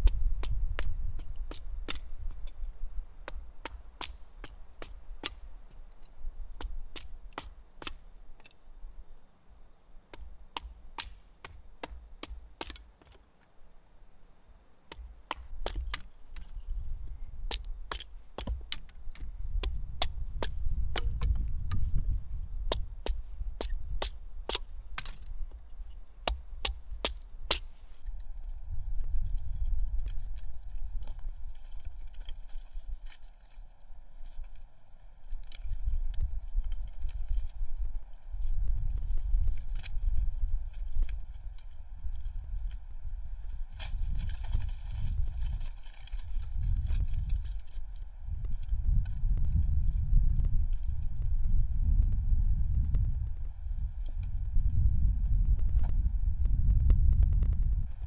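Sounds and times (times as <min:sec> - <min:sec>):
axe splitting wood: 0:00.0 - 0:02.6, 0:03.2 - 0:05.5, 0:06.6 - 0:08.5, 0:10.1 - 0:13.2, 0:14.9 - 0:16.5, 0:17.4 - 0:22.0, 0:22.6 - 0:25.6, 0:26.2 - 0:27.7.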